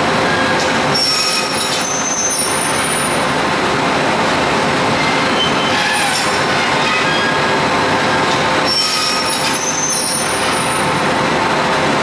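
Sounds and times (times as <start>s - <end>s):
high-pitched metallic squeals: 0.3s - 3.2s, 5.0s - 11.0s.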